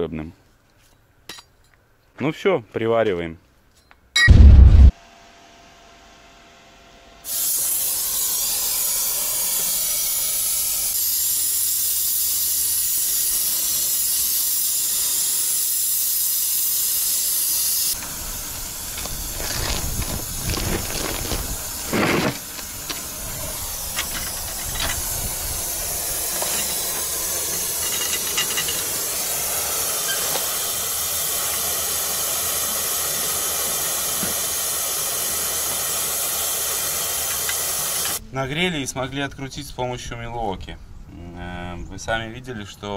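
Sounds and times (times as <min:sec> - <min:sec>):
welding hiss: 0:07.3 - 0:38.2.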